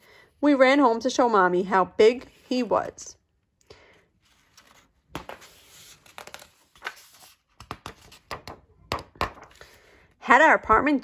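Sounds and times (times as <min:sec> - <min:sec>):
paper rustling: 0:04.2 - 0:08.6
hand pressing on book pages: 0:06.1 - 0:09.6.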